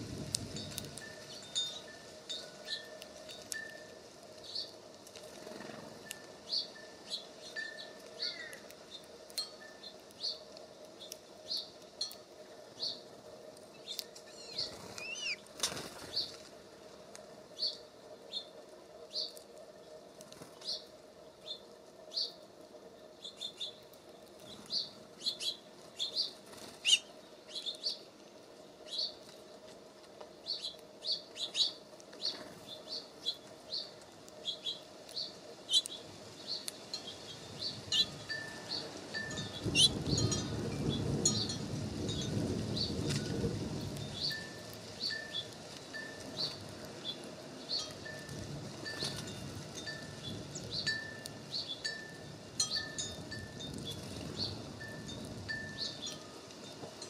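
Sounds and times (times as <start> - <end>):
wind on microphone: 0.0 - 1.4, 39.1 - 45.1
small birds chirping: 0.4 - 43.3, 44.0 - 56.8
wings fluttering: 2.7 - 6.4, 13.6 - 17.3, 20.1 - 20.9, 23.9 - 27.2, 47.8 - 50.9.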